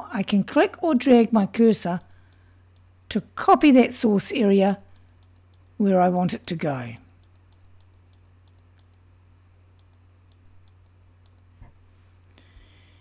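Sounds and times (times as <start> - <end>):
low steady hum: 0.0 - 13.0
computer mouse clicks: 4.8 - 5.8, 6.4 - 9.0, 9.7 - 11.5.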